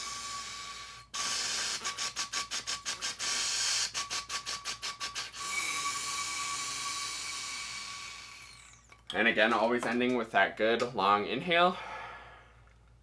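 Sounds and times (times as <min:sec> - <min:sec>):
breath hissing through straw: 0:00.0 - 0:08.2
quick tongued breath puffs: 0:00.0 - 0:08.6
faint steady whistle: 0:00.0 - 0:08.9.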